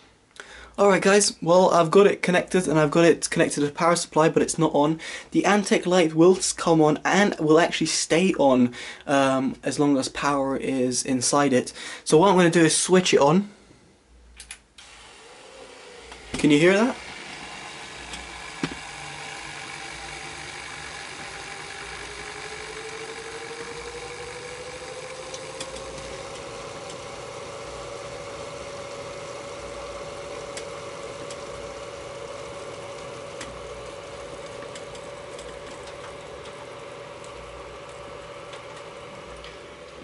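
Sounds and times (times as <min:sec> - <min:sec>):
click: 0:14.4 - 0:14.9, 0:30.5 - 0:31.4
rising whine: 0:14.8 - 0:40.0
liquid cooler pump washing noise: 0:14.9 - 0:40.0.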